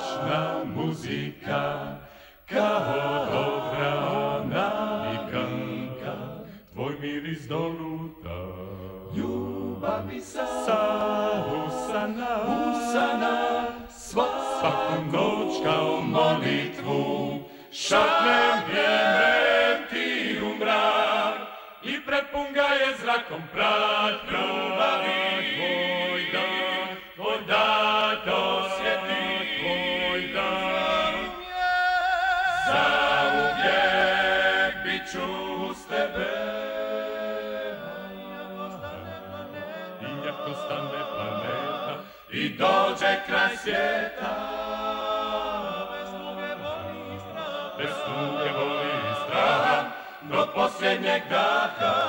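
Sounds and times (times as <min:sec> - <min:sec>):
male choir singing a cappella: 0:00.0 - 0:52.0.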